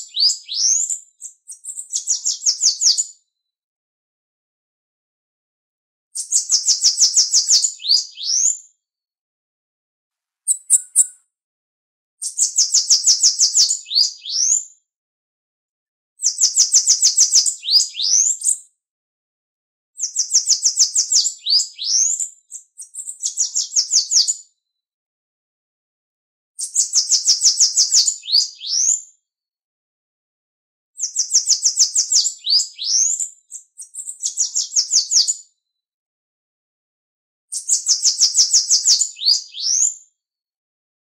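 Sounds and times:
bird singing high trills: 10.5 - 11.2.

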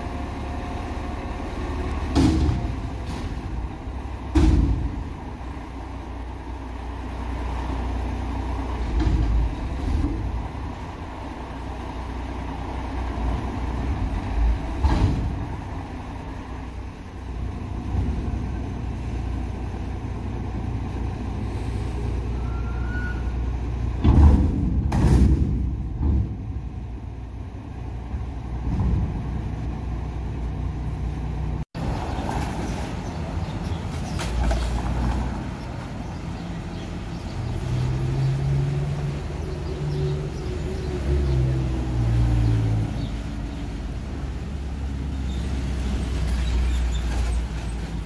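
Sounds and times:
diesel engine rumbling: 0.0 - 48.0
street traffic: 0.0 - 48.0
van passing: 0.0 - 48.0
loud metal knocks: 2.1 - 3.5, 4.2 - 5.2, 24.0 - 27.0
hydraulics lowering truck body: 14.0 - 15.8, 22.0 - 27.2.

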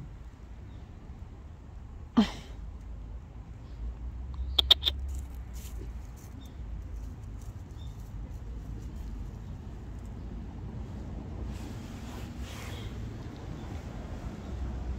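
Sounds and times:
rustling of dry leaves: 5.0 - 14.4.

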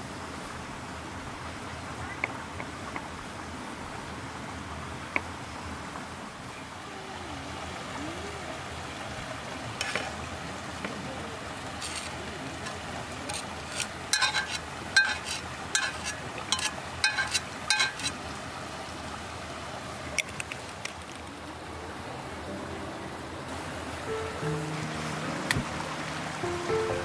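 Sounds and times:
stream murmuring: 0.0 - 27.0
utensil tapping pan and plate: 11.8 - 18.2.

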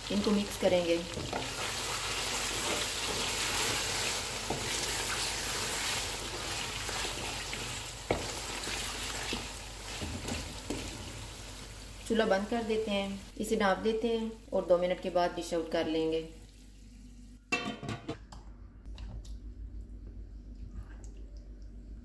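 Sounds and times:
meat sizzling in oil: 0.0 - 13.3.

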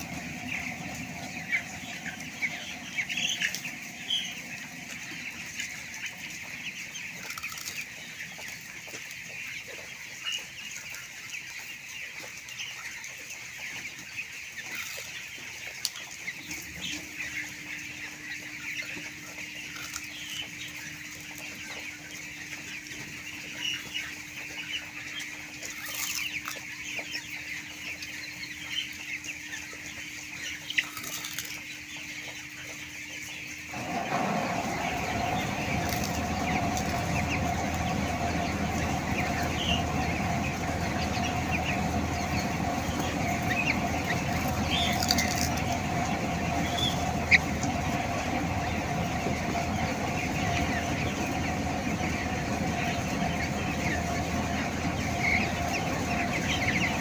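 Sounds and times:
low hum: 0.0 - 8.6, 33.7 - 57.0
chickens chattering: 0.0 - 57.0
wings flapping: 33.7 - 57.0.

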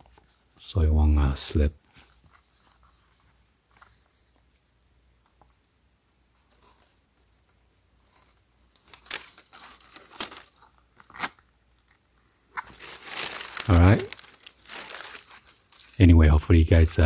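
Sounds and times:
plastic wrap and paper rustling: 8.0 - 11.4, 12.6 - 16.3.

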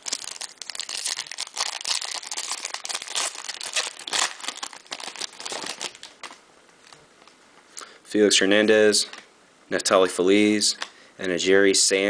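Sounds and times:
foil wrapper tearing and crinkling: 0.0 - 6.3.

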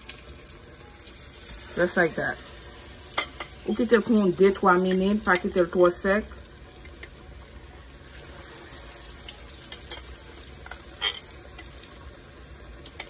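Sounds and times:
oil sizzling in a fryer: 0.0 - 13.0.

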